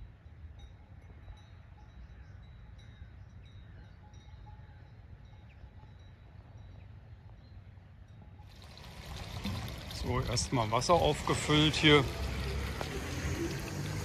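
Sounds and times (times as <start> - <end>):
small bells ringing: 0.6 - 8.8.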